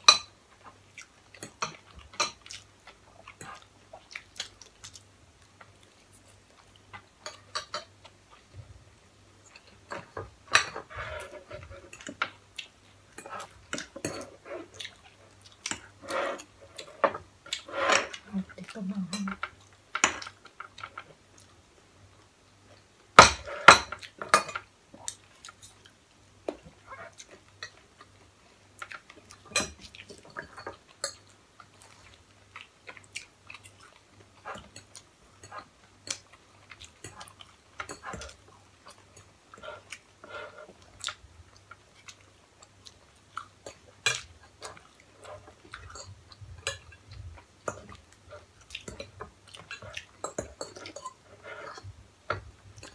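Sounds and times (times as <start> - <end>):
chewing: 0.6 - 8.5, 10.9 - 21.6, 28.8 - 52.0
cutlery clinking on plates: 29.5 - 31.3.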